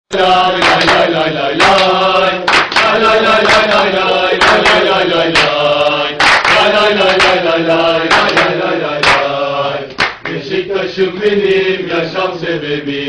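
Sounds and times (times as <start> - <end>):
people clapping: 0.1 - 10.6
men chanting in unison: 0.1 - 13.0.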